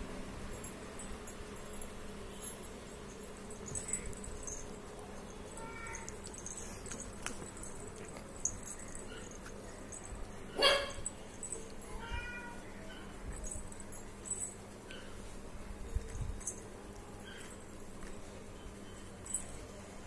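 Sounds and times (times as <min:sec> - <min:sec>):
cat meowing: 0:05.6 - 0:06.2, 0:11.9 - 0:12.8.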